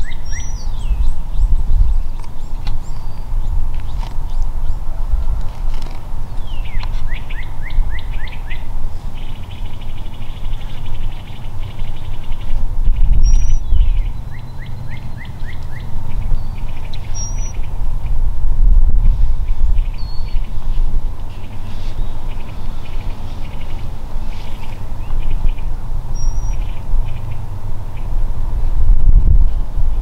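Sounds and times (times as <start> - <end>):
bird singing: 0.0 - 5.0, 5.8 - 18.2, 19.0 - 28.2
steady low rumble: 0.0 - 30.0.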